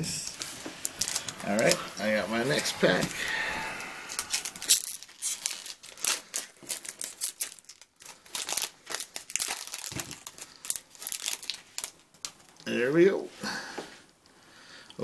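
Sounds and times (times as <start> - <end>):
foil wrapper tearing and crinkling: 0.3 - 3.0, 4.1 - 12.7.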